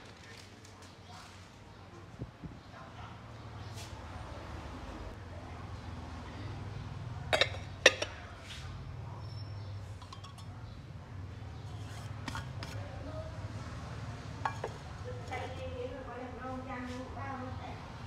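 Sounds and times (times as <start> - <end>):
metal pot lids clinking: 7.3 - 8.2, 10.0 - 10.6, 14.4 - 14.9.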